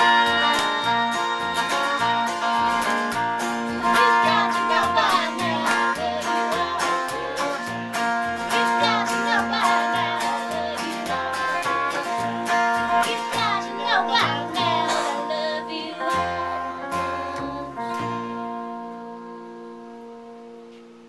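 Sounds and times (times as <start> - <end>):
acoustic guitar: 0.0 - 21.0
electric guitar: 0.0 - 21.0
woman singing: 3.7 - 18.4.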